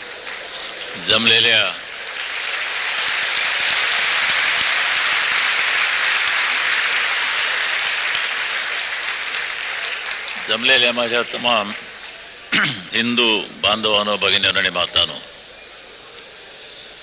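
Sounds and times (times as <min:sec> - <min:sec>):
crowd applauding: 0:00.0 - 0:12.3.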